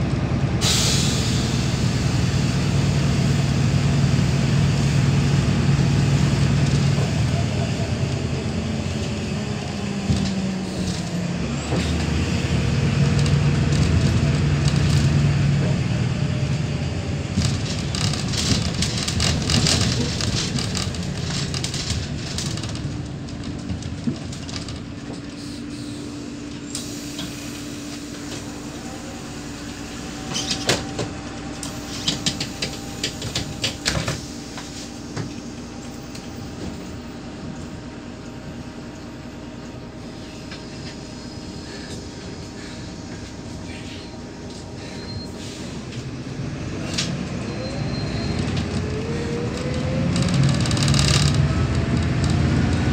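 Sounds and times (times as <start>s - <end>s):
bus diesel engine running: 0.0s - 52.9s
rattles and knocks of bus body: 3.0s - 25.7s, 30.3s - 37.7s, 48.0s - 52.9s.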